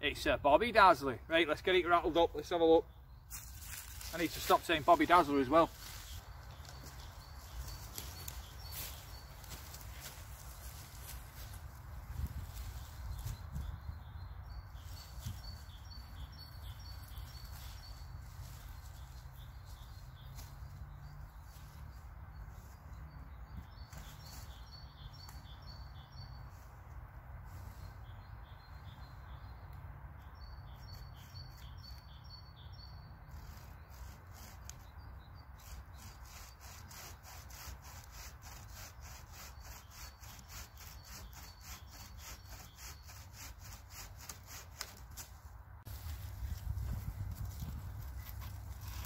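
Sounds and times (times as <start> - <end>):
birds chirping: 0.0 - 45.0
bucksaw cutting through branch: 35.6 - 45.4, 47.6 - 49.0.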